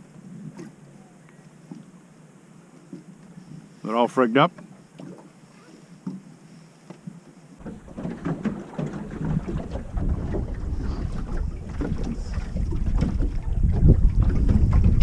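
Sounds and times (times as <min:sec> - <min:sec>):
water splashing against boat hull: 0:06.9 - 0:15.0
wind buffeting microphone: 0:07.6 - 0:15.0.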